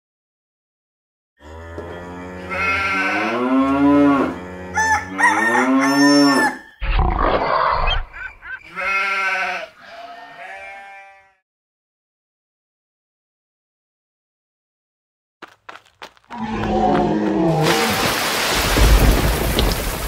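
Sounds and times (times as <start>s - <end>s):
crowing-like calls: 1.5s - 11.4s
sheep bleating: 1.9s - 6.5s, 8.6s - 11.4s.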